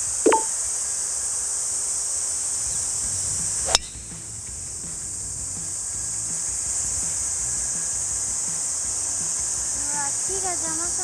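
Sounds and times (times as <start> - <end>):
insects droning: 0.0 - 11.0
golf club striking ball: 0.1 - 0.5, 3.6 - 4.0.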